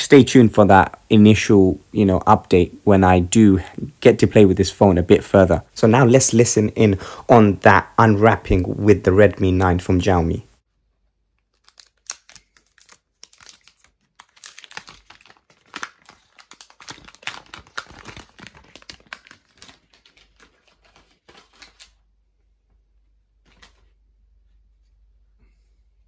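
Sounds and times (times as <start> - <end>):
plastic film peeling off: 11.4 - 22.0.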